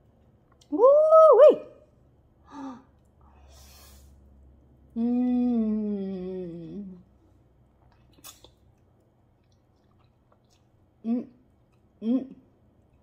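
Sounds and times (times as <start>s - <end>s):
soft chewing and mouth clicks: 0.0s - 0.7s, 6.9s - 12.0s, 12.6s - 13.0s
woman humming mmm: 4.9s - 7.1s.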